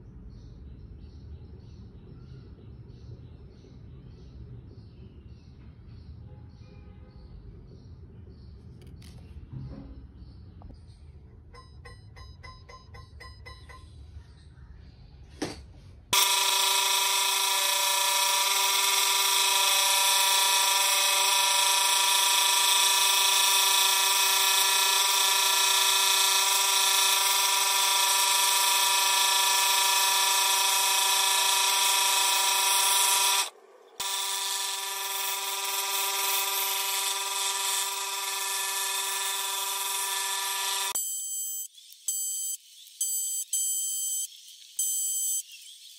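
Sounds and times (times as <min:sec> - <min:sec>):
scroll saw cutting wood: 0:16.2 - 0:41.0.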